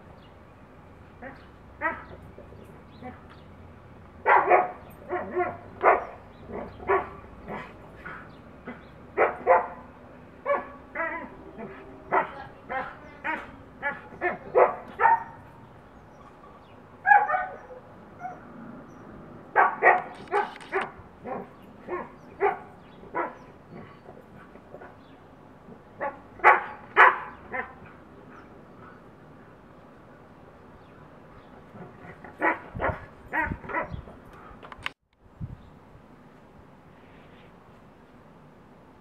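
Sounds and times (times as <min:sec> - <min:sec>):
dogs barking and yipping: 0:01.2 - 0:03.4, 0:04.2 - 0:18.6, 0:19.5 - 0:25.1, 0:25.9 - 0:29.1, 0:31.6 - 0:34.5.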